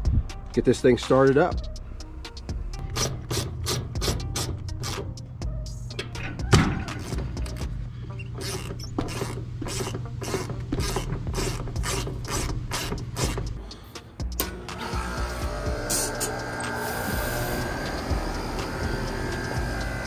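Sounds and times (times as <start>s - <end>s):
ratcheting wrench clicking: 8.3s - 13.6s.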